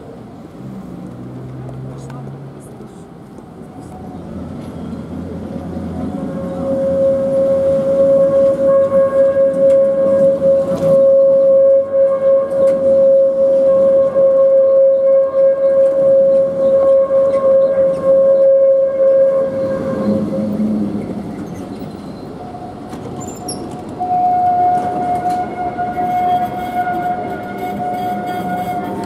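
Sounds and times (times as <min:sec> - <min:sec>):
street noise: 0:00.0 - 0:29.0
tram electrical whine: 0:00.0 - 0:29.0.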